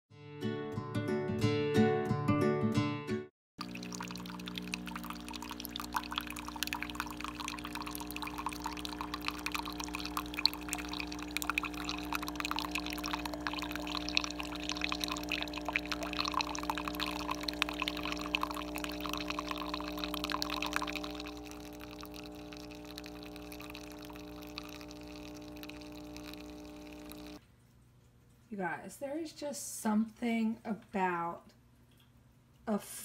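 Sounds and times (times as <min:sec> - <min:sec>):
coffee machine humming: 0:03.6 - 0:27.4
coffee trickling into a cup: 0:03.6 - 0:28.4.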